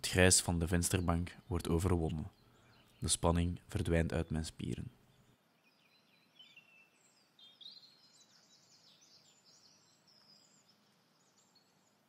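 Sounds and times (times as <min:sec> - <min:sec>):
faint small bird twittering: 0:04.8 - 0:12.0.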